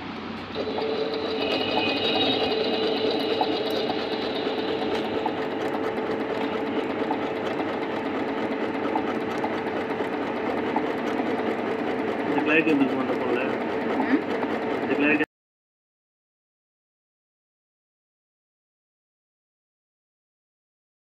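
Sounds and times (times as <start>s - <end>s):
sewing machine running: 0.0s - 15.3s.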